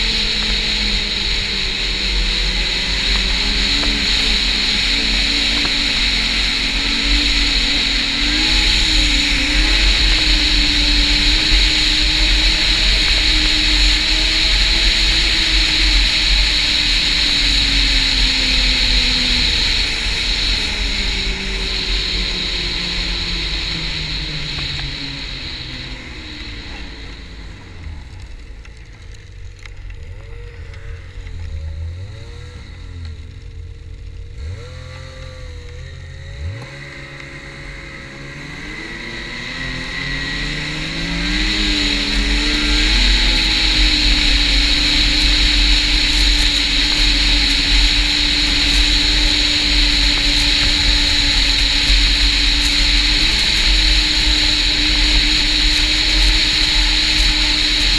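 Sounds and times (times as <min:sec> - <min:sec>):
snowmobile engine revving: 0:00.0 - 0:57.9.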